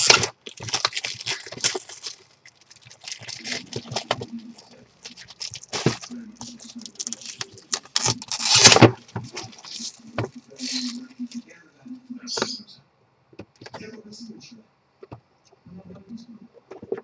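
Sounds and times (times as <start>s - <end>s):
plastic wrapping crinkling: 0.0s - 11.4s.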